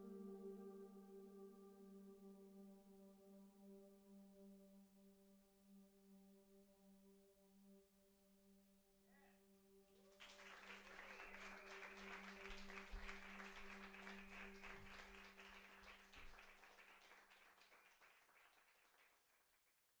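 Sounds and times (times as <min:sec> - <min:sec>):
audience applause: 0:10.1 - 0:19.7.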